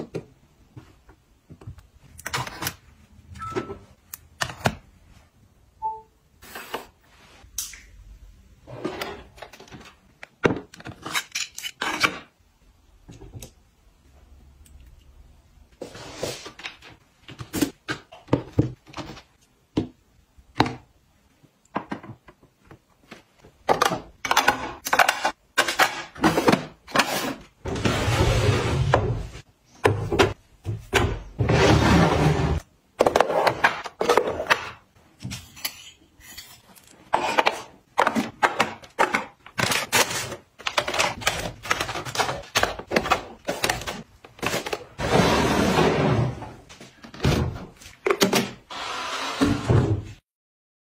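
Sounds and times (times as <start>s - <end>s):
plastic items clicking and knocking: 36.9s - 45.0s.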